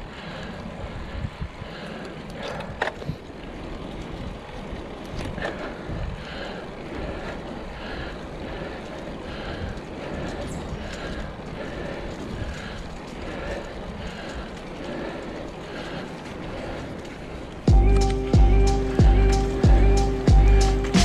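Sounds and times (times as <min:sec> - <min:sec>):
wind on microphone: 0:00.0 - 0:07.6
bike tyres on pavement: 0:00.0 - 0:21.0.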